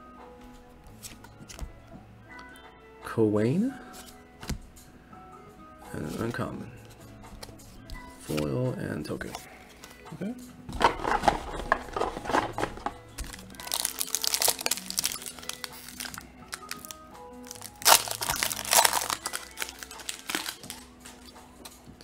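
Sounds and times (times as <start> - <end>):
quiet background music: 0.0 - 22.0
foil wrapper crinkling: 11.9 - 21.3.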